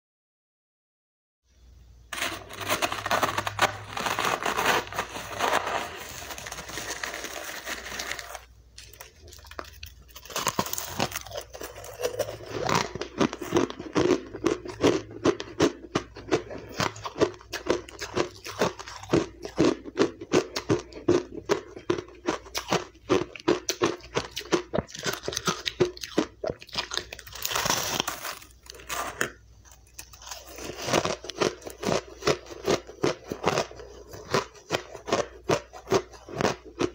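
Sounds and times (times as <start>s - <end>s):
metal spoon scraping ice: 2.1s - 9.0s, 10.2s - 13.9s
chewing crunchy ice: 2.2s - 36.9s.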